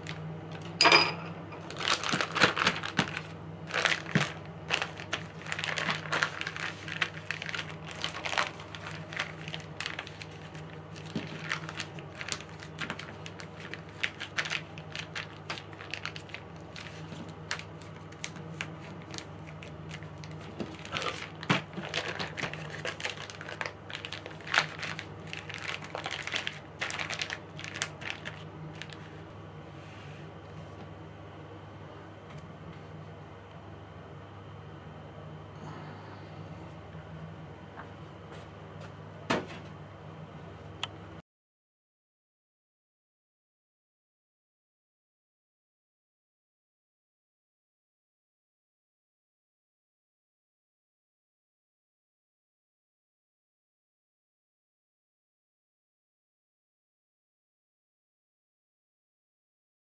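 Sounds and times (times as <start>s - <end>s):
plastic bag crinkling: 1.6s - 29.3s.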